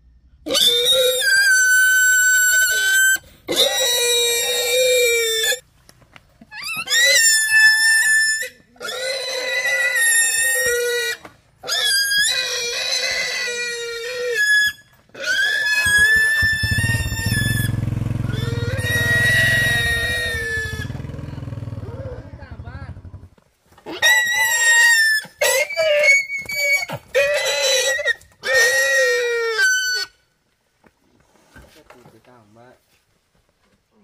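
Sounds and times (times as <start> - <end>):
pig squealing: 0.4 - 5.6, 6.5 - 22.4, 23.8 - 30.2
motorbike engine running: 16.2 - 23.4.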